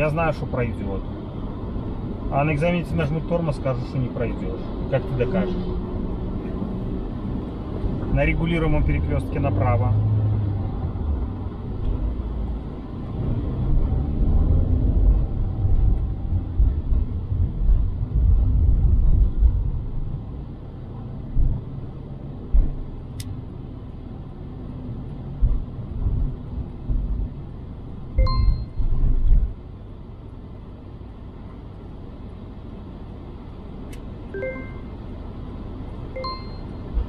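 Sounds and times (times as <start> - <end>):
car road and engine rumble: 0.0 - 37.0
short electronic beeps: 28.2 - 28.9, 34.4 - 35.0, 36.2 - 36.9.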